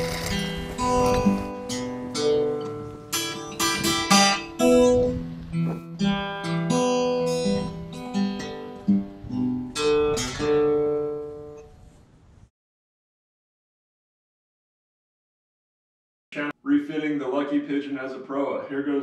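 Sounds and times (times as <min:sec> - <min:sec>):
acoustic guitar plucking and strumming: 0:00.0 - 0:11.8.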